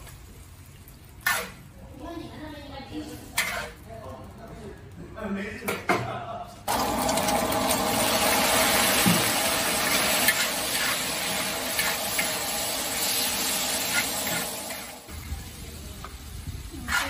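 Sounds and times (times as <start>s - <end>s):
metal spatula scraping and clinking: 1.2s - 1.6s, 3.3s - 3.8s, 9.9s - 14.9s
meat sizzling in a wok: 6.7s - 17.0s.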